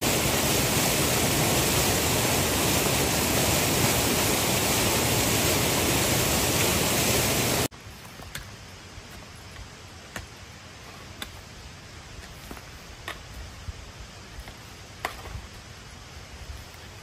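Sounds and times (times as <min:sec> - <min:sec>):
water rushing over rocks: 0:00.0 - 0:07.7
hoes chopping into earth and stones: 0:08.0 - 0:10.4, 0:14.4 - 0:15.4.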